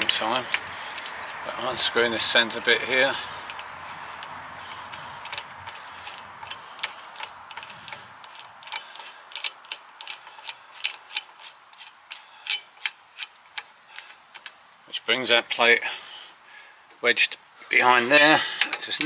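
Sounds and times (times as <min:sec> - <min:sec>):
metallic clicks of brake tool: 0:00.0 - 0:01.5, 0:02.3 - 0:14.6.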